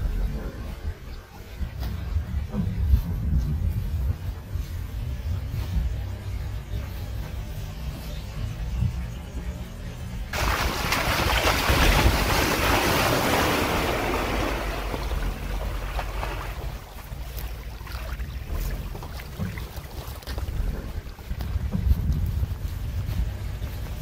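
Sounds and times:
low rumble: 0.0s - 24.0s
tyres splashing through puddle: 10.3s - 24.0s.

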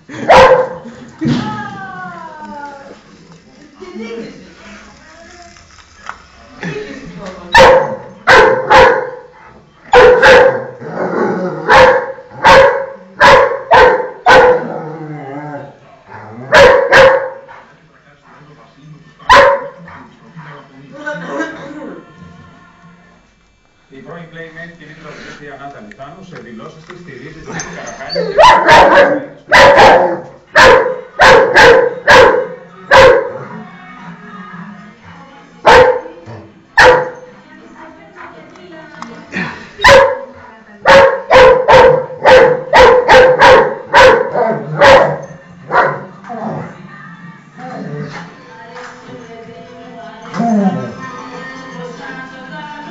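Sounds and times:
dog barking: 0.2s - 0.8s, 7.5s - 9.3s, 9.9s - 10.8s, 11.7s - 14.7s, 16.5s - 17.5s, 19.3s - 19.8s, 28.2s - 33.4s, 35.7s - 36.1s, 36.8s - 37.2s, 39.8s - 46.1s
dog whining: 27.6s - 28.6s.

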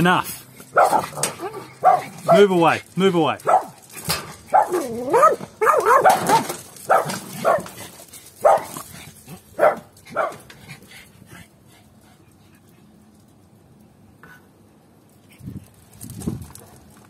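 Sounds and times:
puppies barking: 0.6s - 2.6s, 3.4s - 7.8s, 8.4s - 8.8s, 9.6s - 10.5s.

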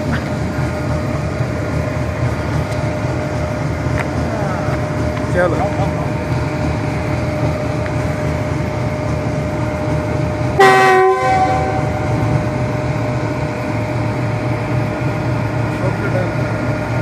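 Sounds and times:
diesel locomotive rumbling: 0.0s - 17.0s
locomotive horn blast: 10.6s - 12.2s.

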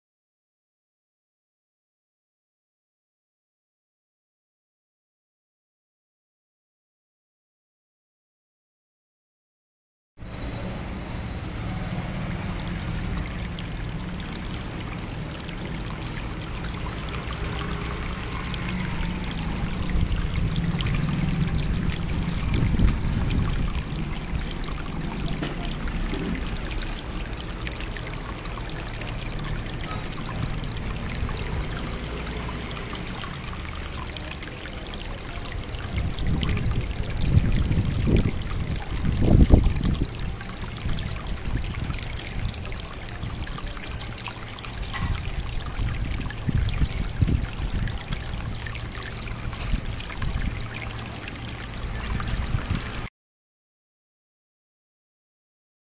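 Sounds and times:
water pouring and trickling: 10.2s - 53.1s
low thumps and rumbles: 18.9s - 28.7s.

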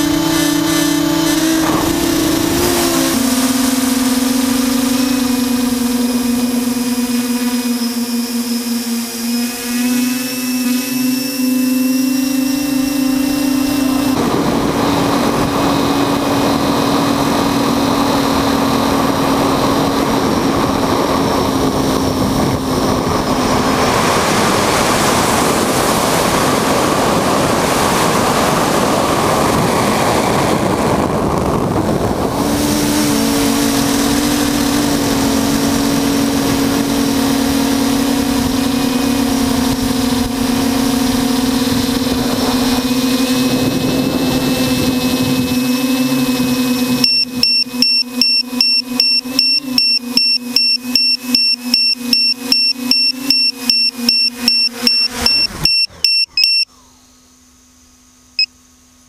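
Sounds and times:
wind noise: 0.0s - 6.9s, 11.8s - 47.8s
drone motors whining: 0.0s - 58.4s.

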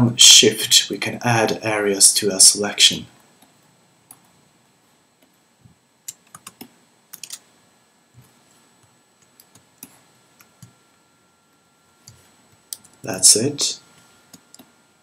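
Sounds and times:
keyboard keys clicking: 6.1s - 7.4s.

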